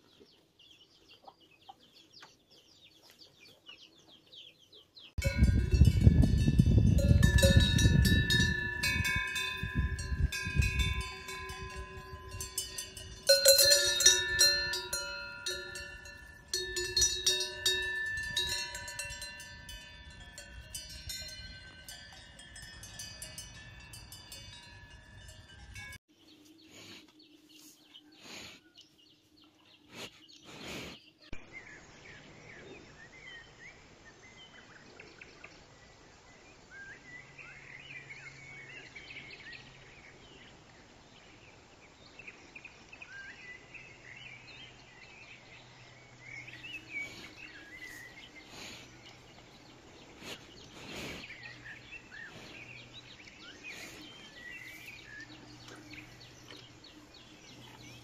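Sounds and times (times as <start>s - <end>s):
cowbells clanking: 5.2s - 26.0s, 46.6s - 58.0s.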